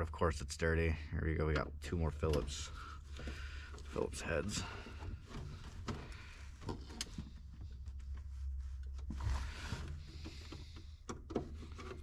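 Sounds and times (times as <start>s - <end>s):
screwdriver scraping and turning: 8.8s - 12.0s.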